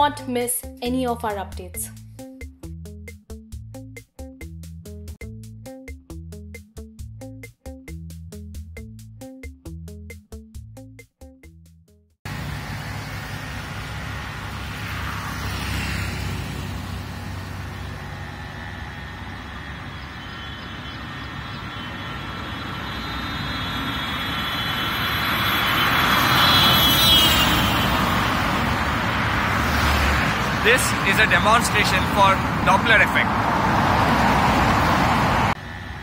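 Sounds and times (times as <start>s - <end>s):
highway traffic: 12.2s - 36.0s
vehicle passing by with whine: 12.3s - 36.0s.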